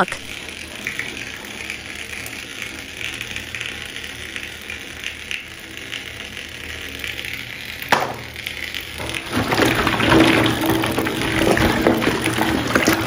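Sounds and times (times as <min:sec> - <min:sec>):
sharp knock: 0:07.9 - 0:08.2
plastic balls rattling in a bucket: 0:09.0 - 0:13.0.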